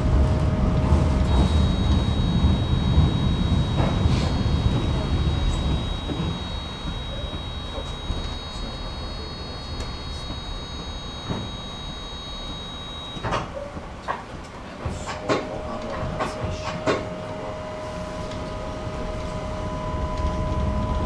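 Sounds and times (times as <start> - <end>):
high electrical whine: 1.2 - 13.6.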